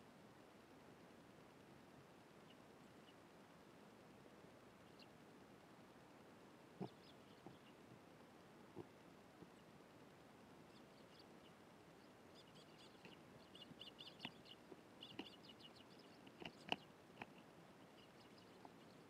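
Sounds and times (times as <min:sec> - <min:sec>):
sparrows chirping: 0:06.8 - 0:07.9, 0:10.6 - 0:19.0.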